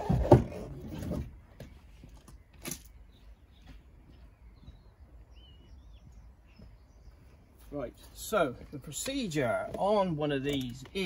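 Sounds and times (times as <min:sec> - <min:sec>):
faint bird chirps: 0:01.5 - 0:08.9.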